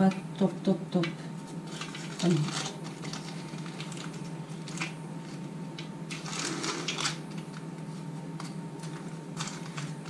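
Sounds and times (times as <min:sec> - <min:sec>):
steady low hum: 0:00.0 - 0:10.0
baking paper crinkling: 0:01.4 - 0:05.5, 0:06.1 - 0:10.0.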